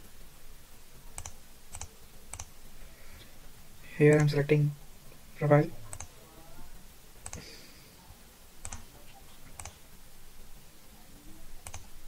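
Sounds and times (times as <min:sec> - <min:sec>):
mouse button clicking: 0:04.1 - 0:04.4.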